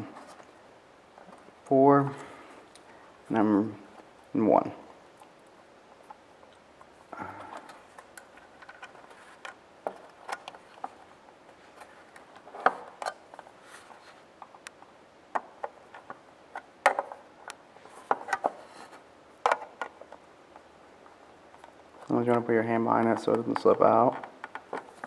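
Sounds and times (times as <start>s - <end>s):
clicks and taps of wiring: 21.6s - 25.0s.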